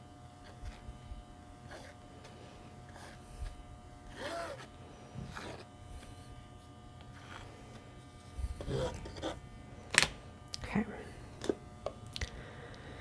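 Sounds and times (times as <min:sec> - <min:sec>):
spreader scraping paint on canvas: 0:01.6 - 0:09.4.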